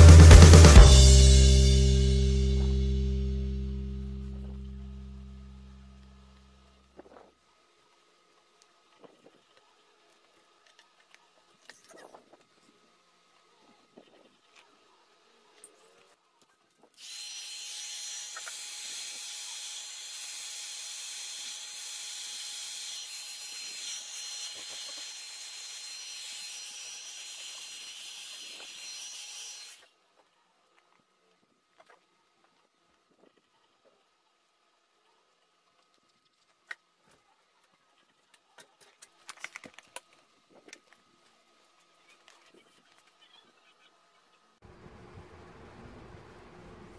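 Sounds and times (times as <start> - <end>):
high fan whine: 44.6 - 46.9.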